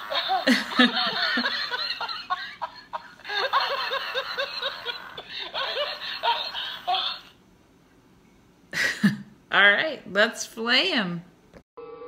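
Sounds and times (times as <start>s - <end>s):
toy recorded laughing voice: 3.4s - 7.4s.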